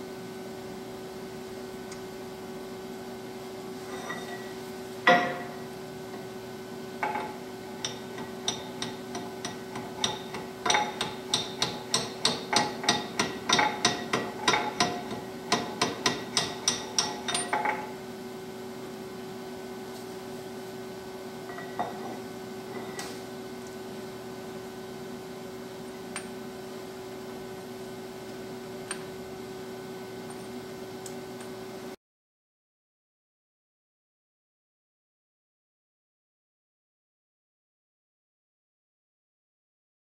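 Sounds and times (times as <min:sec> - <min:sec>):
steady hum: 0:00.0 - 0:32.0
hammer striking metal: 0:05.1 - 0:05.6, 0:07.0 - 0:17.8.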